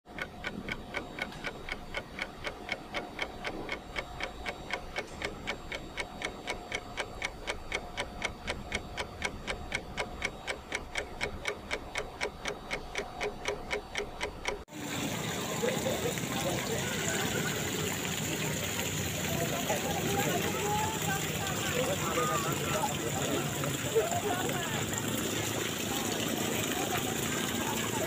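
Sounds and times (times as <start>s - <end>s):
rapid even ticking: 0.1s - 14.7s.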